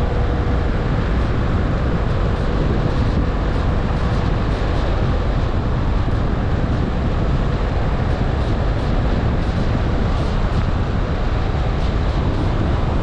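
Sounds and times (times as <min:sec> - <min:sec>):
car road noise rumble: 0:00.0 - 0:13.0.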